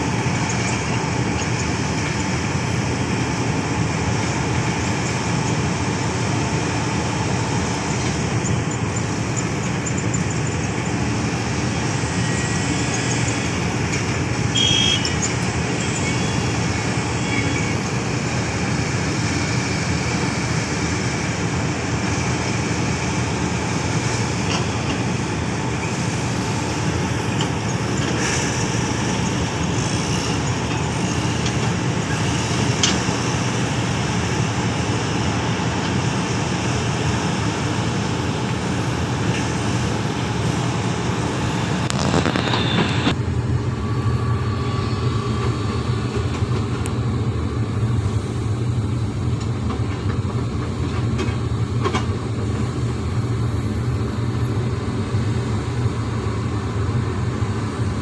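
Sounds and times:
excavator diesel engines droning: 0:00.0 - 0:58.0.

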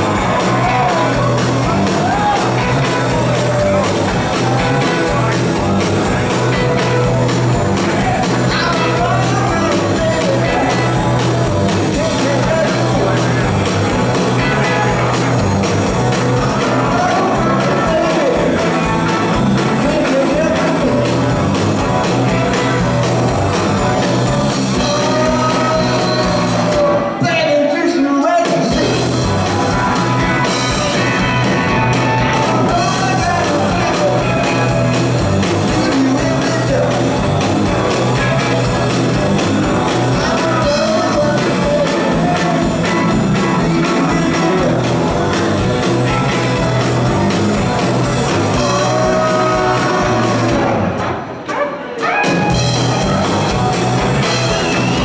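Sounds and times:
person singing lead vocal: 0:00.0 - 0:05.3, 0:07.8 - 0:11.2, 0:11.8 - 0:13.6, 0:16.3 - 0:18.8, 0:19.7 - 0:21.3, 0:24.7 - 0:31.4, 0:32.0 - 0:37.4, 0:39.8 - 0:45.1, 0:48.3 - 0:50.9
electric guitars: 0:00.0 - 0:27.8, 0:28.4 - 0:55.0
bass guitar: 0:00.0 - 0:55.0
drums: 0:00.0 - 0:55.0.

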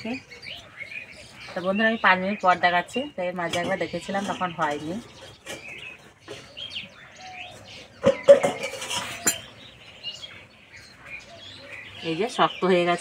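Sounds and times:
birds chirping: 0:00.0 - 0:13.0
metal lid clanking: 0:08.0 - 0:09.5.

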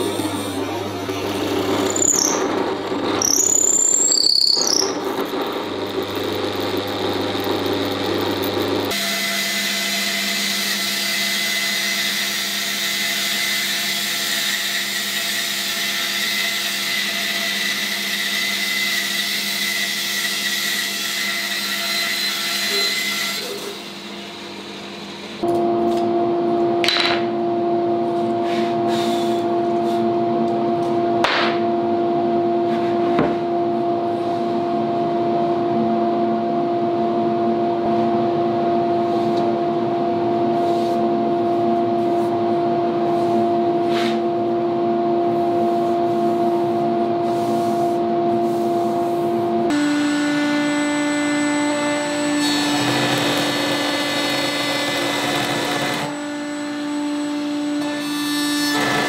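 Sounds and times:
machine motor whine: 0:00.0 - 0:09.1, 0:48.0 - 0:59.0
router cutting wood: 0:00.0 - 0:25.2, 0:49.7 - 0:59.0.

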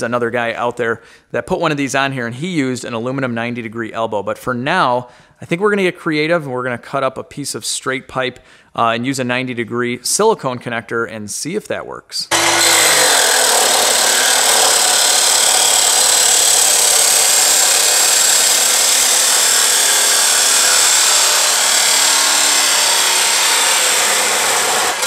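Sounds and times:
cut-off saw cutting metal: 0:12.3 - 0:25.0.

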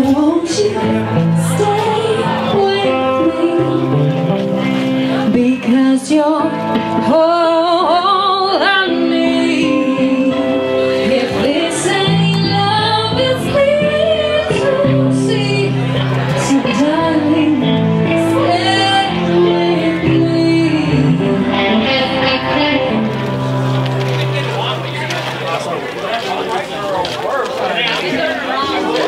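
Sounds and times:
pop song with female vocals: 0:00.0 - 0:04.0, 0:05.2 - 0:23.0.

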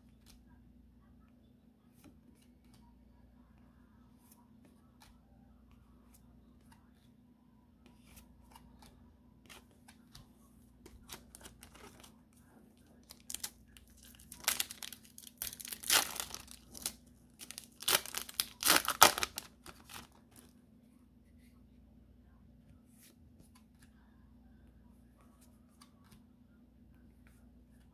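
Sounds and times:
foil wrapper crinkling: 0:13.0 - 0:20.1
foil wrapper tearing: 0:13.1 - 0:20.1.

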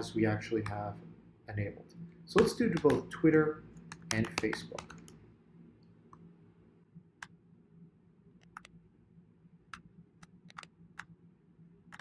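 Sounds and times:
low steady hum: 0:00.0 - 0:12.0
computer keyboard keystrokes: 0:02.4 - 0:03.1, 0:03.9 - 0:05.2, 0:08.4 - 0:08.7, 0:09.7 - 0:11.1.

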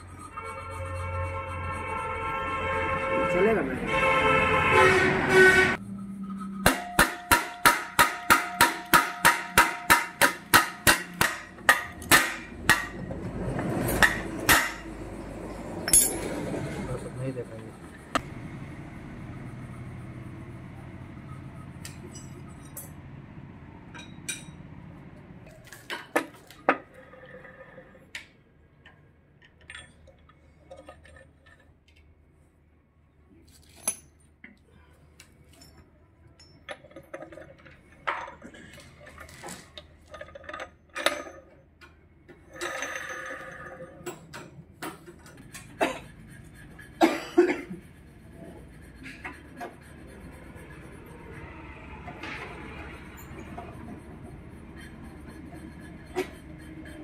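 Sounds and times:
steady low hum: 0:09.8 - 0:25.4
metal parts clinking: 0:15.9 - 0:16.3.

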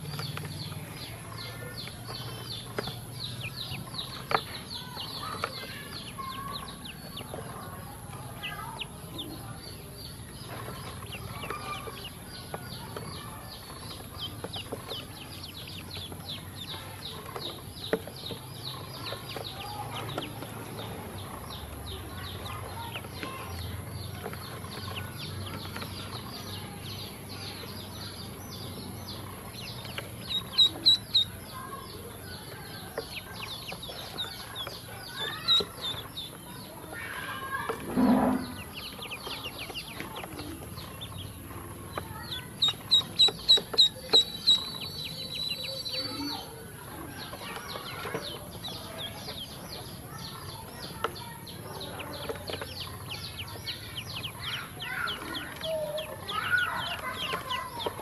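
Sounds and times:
ducklings peeping: 0:00.0 - 0:58.0.

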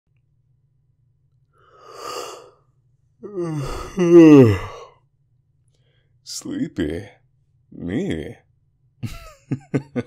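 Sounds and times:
man yawning: 0:03.2 - 0:05.0.

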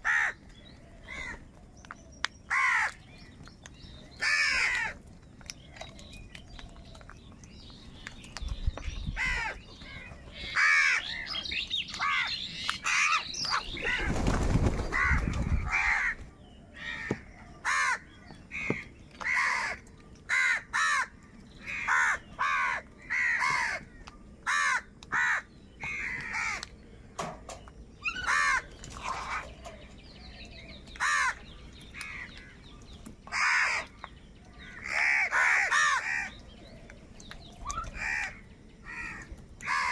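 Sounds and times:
crows cawing: 0:00.0 - 0:00.4, 0:02.5 - 0:03.0, 0:04.2 - 0:05.0, 0:09.2 - 0:11.3, 0:14.9 - 0:16.2, 0:16.8 - 0:26.7, 0:28.0 - 0:29.5, 0:31.0 - 0:32.6, 0:33.3 - 0:34.0, 0:34.6 - 0:36.4, 0:37.9 - 0:39.9.

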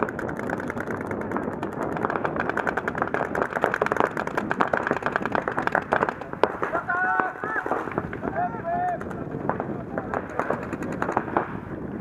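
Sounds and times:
paintball markers firing rapidly: 0:00.0 - 0:11.6.

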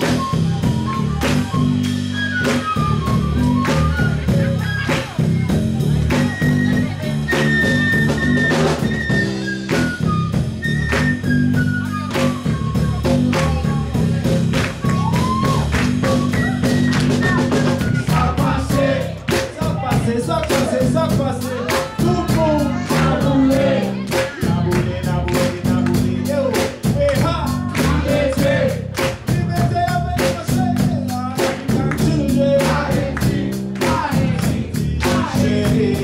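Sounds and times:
flute solo: 0:00.0 - 0:14.2, 0:14.8 - 0:18.9
bass: 0:00.0 - 0:36.0
drums: 0:00.0 - 0:36.0.

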